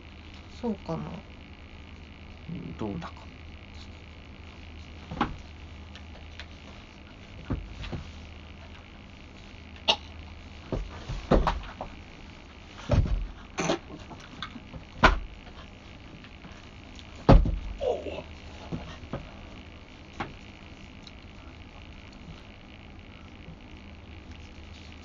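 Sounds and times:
steady low hum: 0:00.0 - 0:25.0
knocks and thuds: 0:10.7 - 0:11.8, 0:12.8 - 0:13.4, 0:15.0 - 0:15.3, 0:17.2 - 0:17.8.

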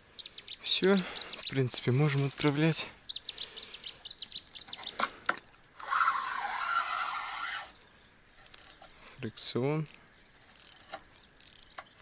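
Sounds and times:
small bird chirping: 0:00.0 - 0:02.0, 0:03.0 - 0:05.2, 0:05.9 - 0:12.0
sharp clicks: 0:08.4 - 0:08.8, 0:09.7 - 0:12.0.

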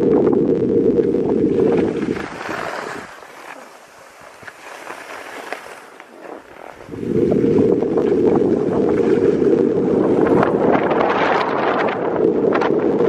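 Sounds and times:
wind buffeting microphone: 0:00.0 - 0:04.7, 0:06.2 - 0:13.0
skis hissing on snow: 0:02.0 - 0:06.9.

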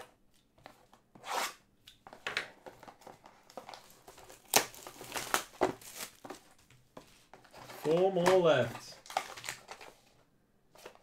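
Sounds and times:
packaging crinkling and rustling: 0:02.6 - 0:06.7, 0:07.4 - 0:10.2
packaging ripping: 0:03.7 - 0:06.2.

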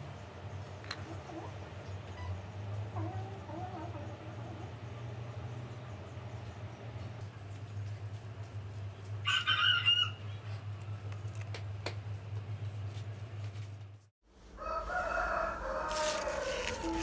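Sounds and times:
rooster crowing: 0:09.2 - 0:10.3, 0:14.5 - 0:17.0.

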